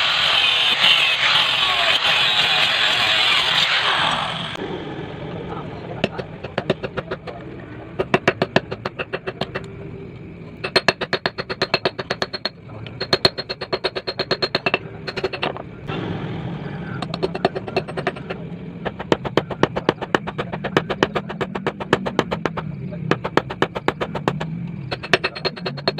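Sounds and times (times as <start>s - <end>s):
steady low hum: 4.4s - 25.9s
hammer striking hot metal: 6.0s - 7.3s, 10.6s - 15.6s, 17.0s - 25.9s.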